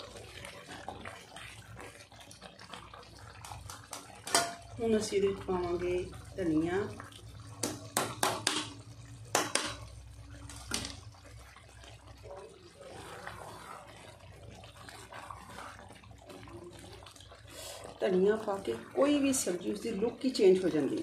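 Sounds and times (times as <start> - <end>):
thick sauce simmering and bubbling: 0.0 - 21.0
utensils tapping a pan: 3.6 - 4.6, 7.6 - 9.9.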